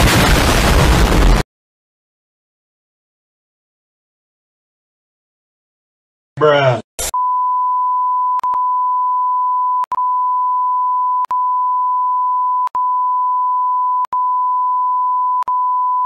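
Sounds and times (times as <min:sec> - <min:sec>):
censor bleep tone: 0:07.1 - 0:16.0.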